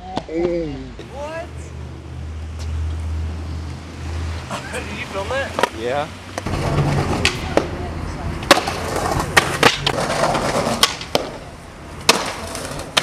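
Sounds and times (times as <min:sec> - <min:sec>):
skateboard wheels rolling on concrete: 0:00.0 - 0:13.0
skateboard clacks: 0:06.4 - 0:07.8, 0:08.4 - 0:13.0.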